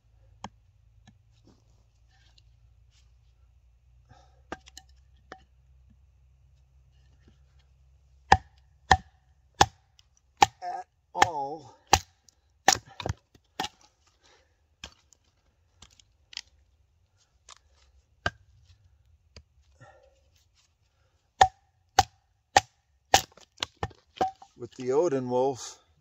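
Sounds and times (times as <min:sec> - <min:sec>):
wooden baton striking machete: 0:08.3 - 0:09.8, 0:10.4 - 0:13.8, 0:21.4 - 0:24.5.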